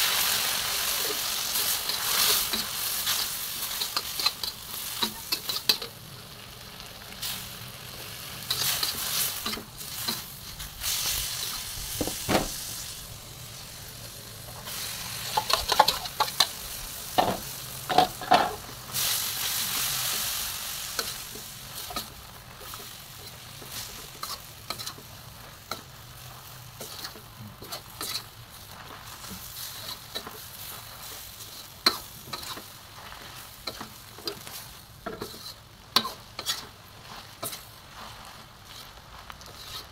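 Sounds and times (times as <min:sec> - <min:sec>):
stir-fry sizzling in a wok: 0:00.0 - 0:39.9
metal spatula scraping a wok: 0:00.2 - 0:06.0, 0:07.2 - 0:11.8, 0:14.7 - 0:39.9.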